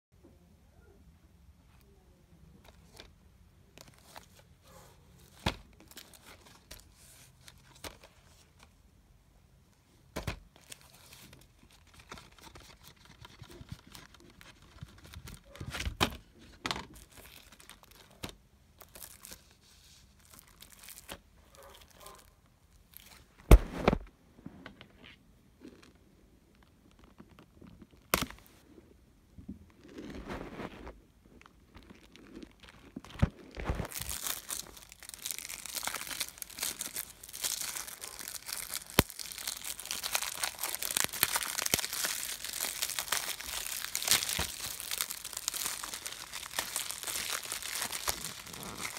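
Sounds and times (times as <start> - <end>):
plastic wrap crinkling and tearing: 10.6 - 16.0, 16.9 - 24.0, 29.9 - 48.9.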